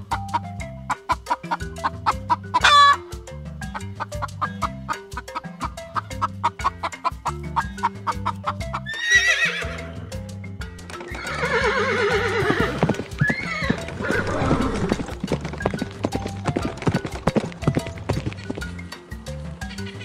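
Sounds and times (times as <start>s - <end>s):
music with plucked beat: 0.0s - 20.0s
horse whinnying: 8.8s - 10.1s, 10.9s - 17.2s.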